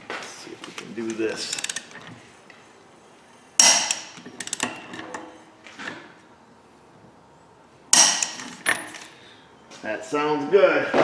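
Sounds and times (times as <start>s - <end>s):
torque wrench clicking: 1.1s - 2.2s, 3.6s - 4.8s.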